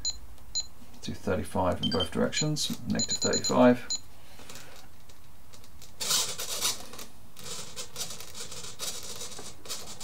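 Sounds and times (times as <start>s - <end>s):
transmitter sticks scratching and clicking: 5.0s - 10.0s.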